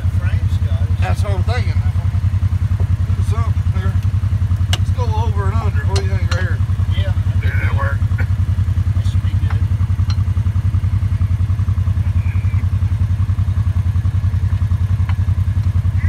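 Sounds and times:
vehicle engine idling: 0.0s - 16.0s.

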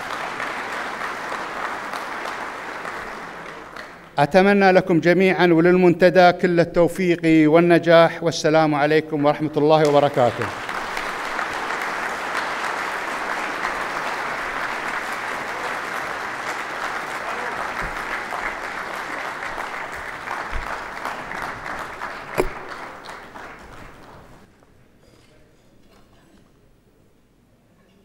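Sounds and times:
audience applauding: 0.0s - 4.2s, 9.2s - 24.5s.

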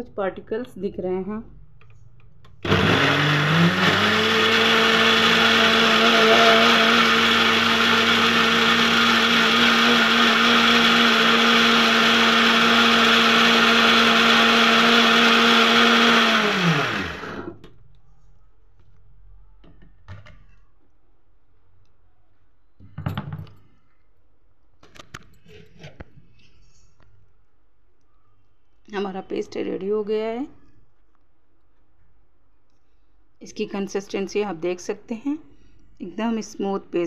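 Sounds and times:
mixer grinder motor whine: 2.6s - 17.6s.

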